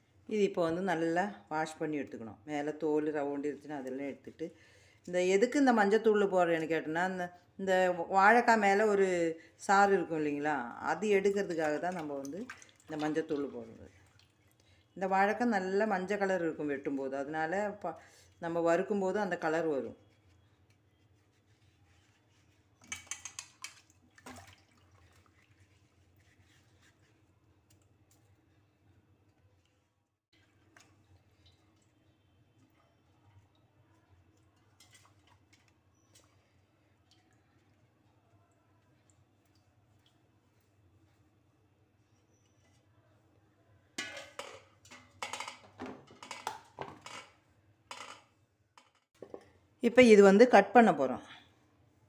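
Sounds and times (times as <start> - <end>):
faint water drips: 9.4 - 18.6, 19.2 - 41.4
hands splashing water in bowl: 22.9 - 25.8.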